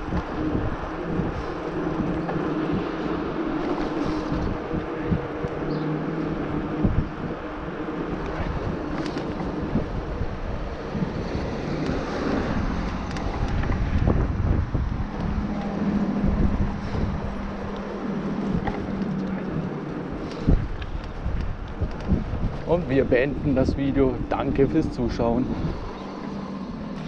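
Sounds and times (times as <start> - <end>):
bike tyres rolling: 0.0 - 27.0
wind buffeting microphone: 0.0 - 27.0.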